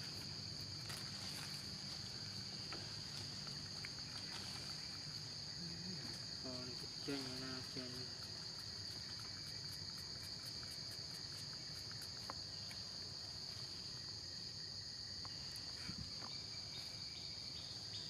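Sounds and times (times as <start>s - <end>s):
forest insects chorus: 0.0s - 18.0s.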